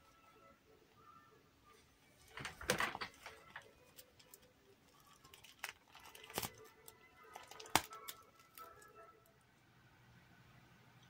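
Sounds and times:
faint background music: 0.0 - 11.0.

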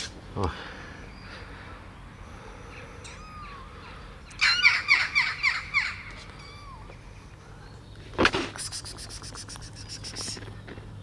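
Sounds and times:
kitten mewing: 8.4 - 10.4.

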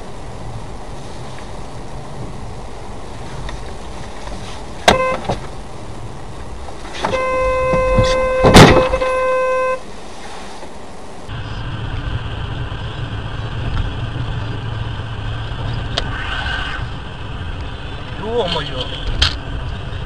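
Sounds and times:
steady road noise: 0.0 - 20.0
car horn blaring: 4.8 - 5.4, 7.0 - 9.9
brief horn toot: 4.9 - 5.4, 7.0 - 9.8
vehicle collision crash: 6.9 - 9.6.

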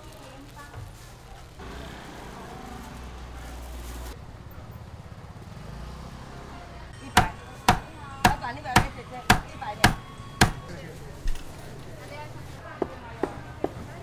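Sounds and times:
cleaver chopping on a board: 7.2 - 10.6.

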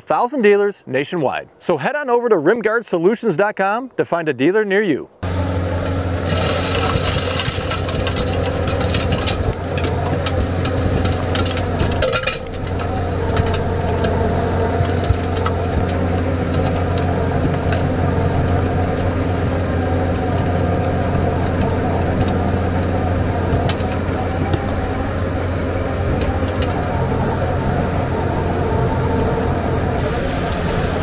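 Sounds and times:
diesel engine running under load: 5.2 - 31.0
sharp clicks and rattles: 6.2 - 27.3.

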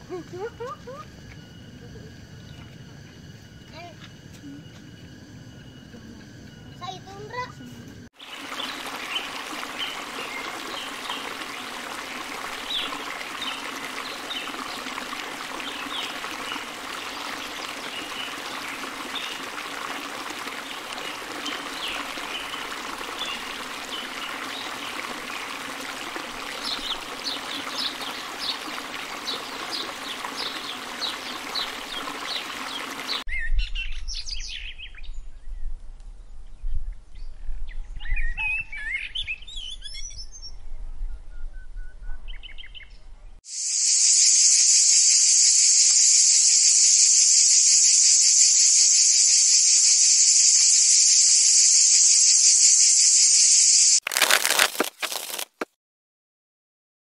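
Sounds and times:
running water: 8.2 - 33.2
birds chirping: 26.4 - 33.2
high-pitched insect buzz: 43.5 - 55.4.

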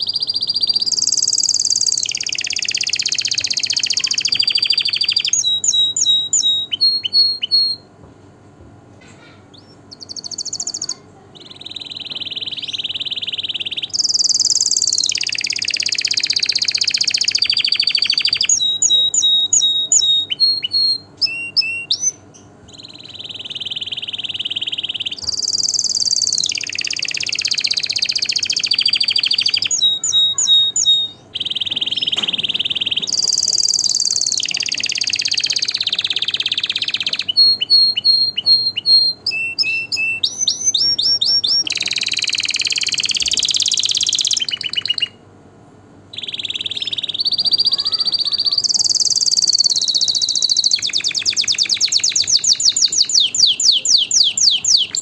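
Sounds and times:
canary singing trills: 0.0 - 8.0, 9.1 - 55.0.

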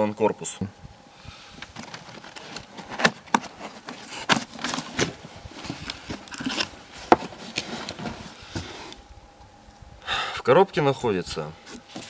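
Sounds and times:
cardboard scraping and rustling: 1.6 - 9.0, 11.6 - 12.0.

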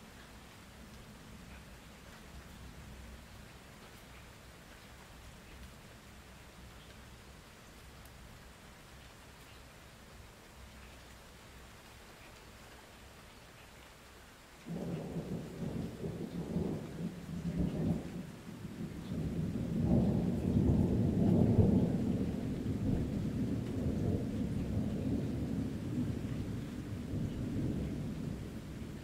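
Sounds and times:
deep thunder rumble: 14.7 - 29.0.

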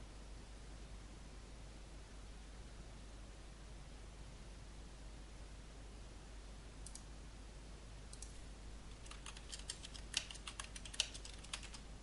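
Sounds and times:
typing on computer keyboard: 8.1 - 11.8.

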